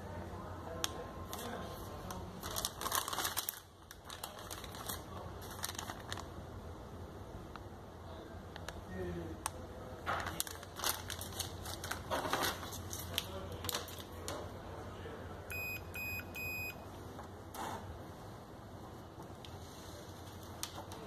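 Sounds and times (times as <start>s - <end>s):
plastic bag crinkling: 2.2s - 6.4s, 10.1s - 14.1s
multimeter short beeps: 15.5s - 16.8s.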